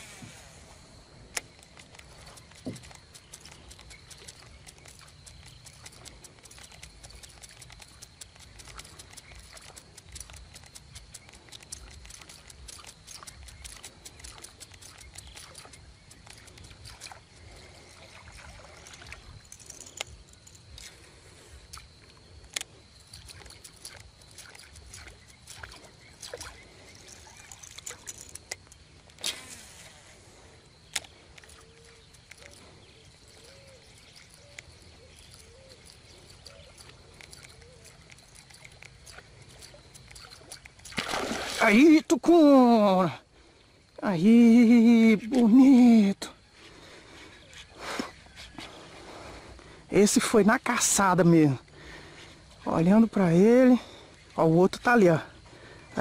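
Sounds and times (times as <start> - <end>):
water sloshing and trickling: 0.0 - 43.7
fishing reel clicks: 1.3 - 17.3, 19.4 - 21.0, 21.6 - 29.9, 30.8 - 32.6, 33.2 - 42.0.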